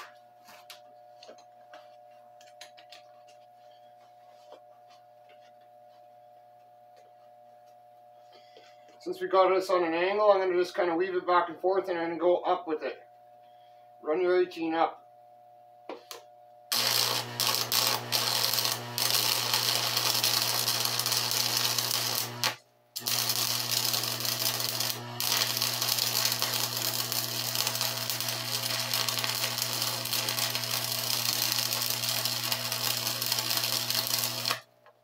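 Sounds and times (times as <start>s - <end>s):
welding arc crackling hiss: 16.7s - 34.7s.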